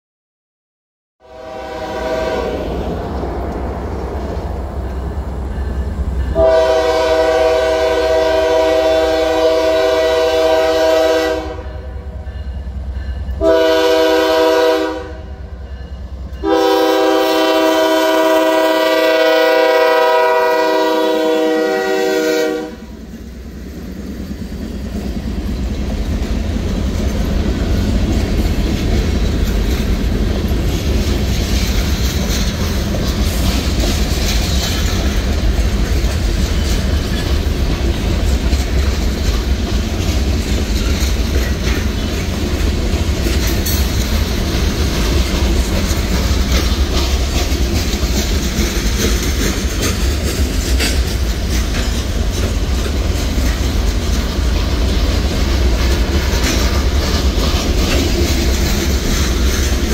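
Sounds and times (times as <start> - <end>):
locomotive horn blasts: 1.2 - 2.7, 6.4 - 12.1, 13.4 - 15.4, 16.4 - 22.9
locomotive engine rumbling: 1.2 - 59.9
train wheels clicking on rails: 15.5 - 59.9.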